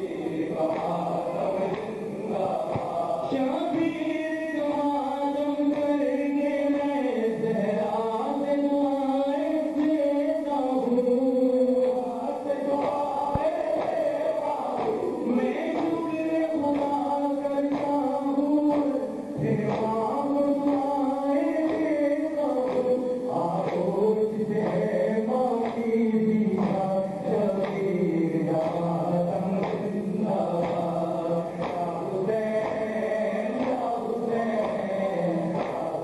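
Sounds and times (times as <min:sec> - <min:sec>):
men chanting in held lines: 0:00.0 - 0:36.0
hands slapping bare chests: 0:12.8 - 0:14.0.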